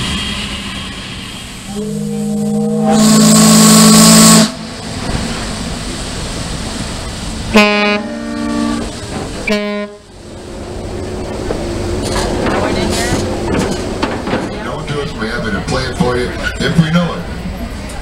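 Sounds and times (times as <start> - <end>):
ship's whistle blasts: 1.7 - 4.8.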